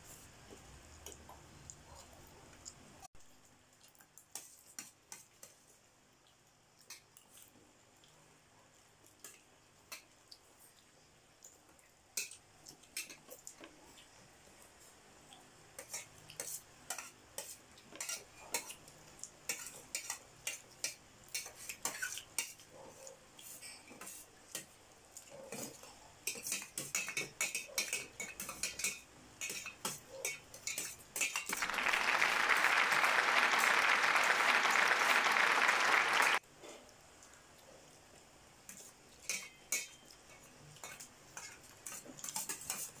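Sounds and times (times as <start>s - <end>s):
cutlery clinking on metal plates: 25.6s - 31.6s, 38.7s - 42.9s.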